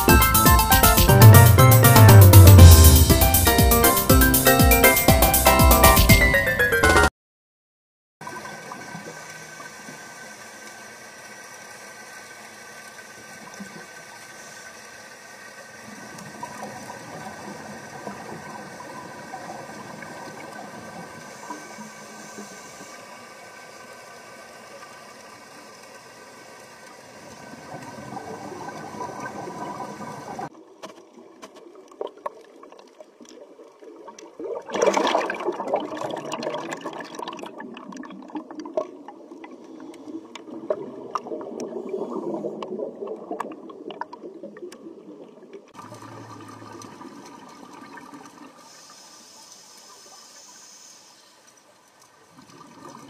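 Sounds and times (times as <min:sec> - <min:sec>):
underwater watery hiss with bubbling: 0:08.6 - 0:30.5, 0:34.0 - 0:53.0
crackling rush of exhaled bubbles: 0:27.3 - 0:48.8, 0:52.3 - 0:53.0.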